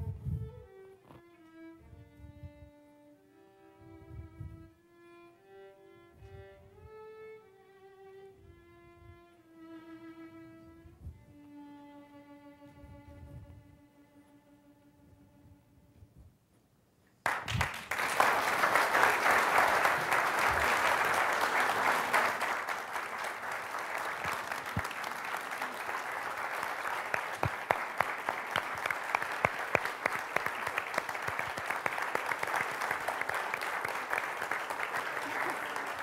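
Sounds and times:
audience applause: 0:17.2 - 0:36.0.

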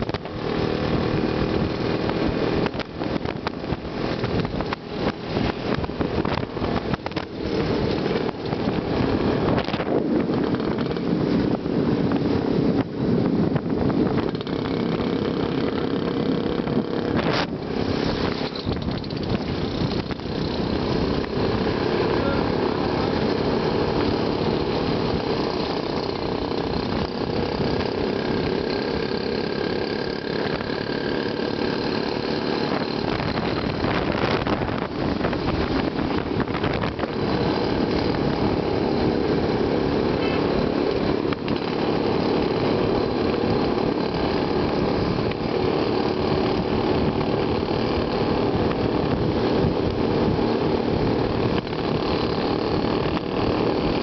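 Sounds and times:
road and wind rumble: 0:00.0 - 0:54.0
vehicle engines running: 0:00.0 - 0:54.0
rattling clicks: 0:18.3 - 0:20.2.

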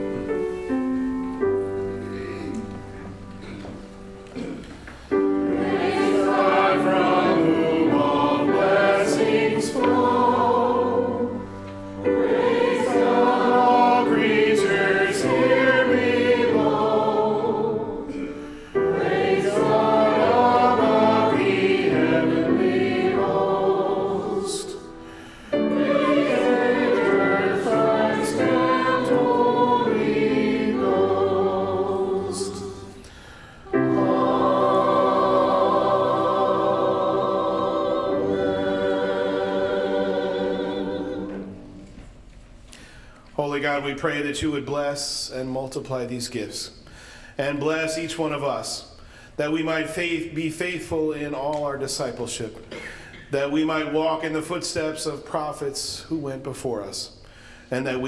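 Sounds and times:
choir singing a hymn: 0:05.1 - 0:42.1.

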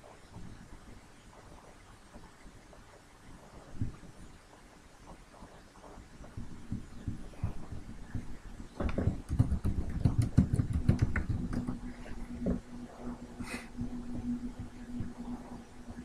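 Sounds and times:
computer keyboard typing: 0:08.8 - 0:11.8.

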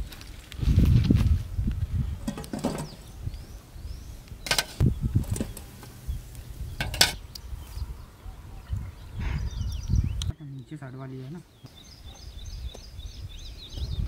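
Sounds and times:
metal utensils clattering: 0:02.2 - 0:03.1, 0:04.5 - 0:05.7, 0:06.8 - 0:07.2.

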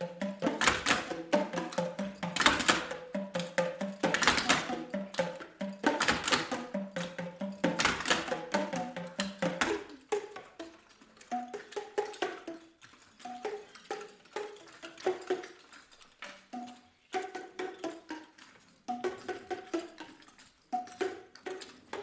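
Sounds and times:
clogging shoes tapping: 0:00.0 - 0:15.4
tuned plastic tubes struck: 0:00.0 - 0:22.0.

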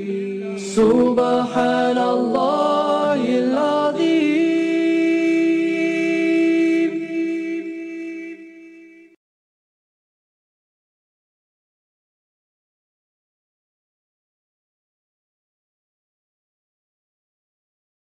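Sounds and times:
man singing: 0:00.0 - 0:09.2.

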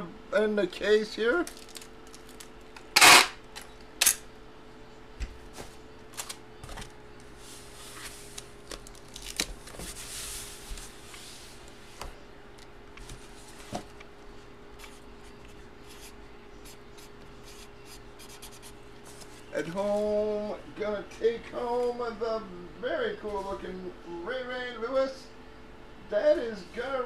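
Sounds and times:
faint steady hum: 0:00.0 - 0:27.0
packaging crinkle: 0:01.4 - 0:02.8, 0:08.3 - 0:09.9
sliding and rubbing: 0:09.8 - 0:12.1.

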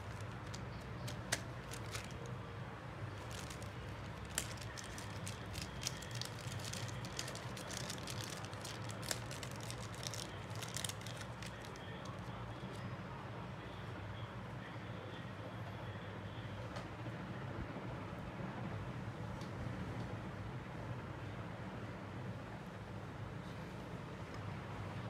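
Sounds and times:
light clicks of small parts: 0:00.0 - 0:02.4, 0:03.2 - 0:12.9.

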